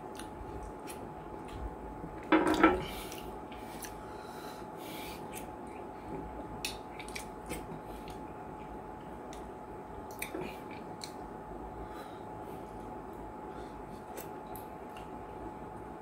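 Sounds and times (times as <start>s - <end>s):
wet squishes of eating: 0.0s - 1.8s, 5.2s - 11.3s
faint steady hum: 0.0s - 16.0s.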